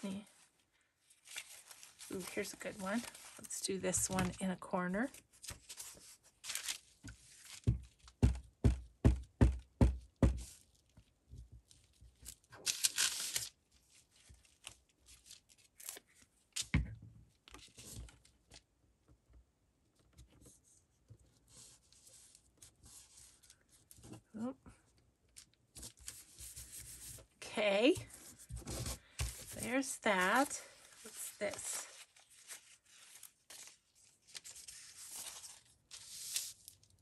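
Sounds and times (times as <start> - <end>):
paper rustling: 1.1 - 4.5, 5.3 - 8.1, 27.9 - 36.9.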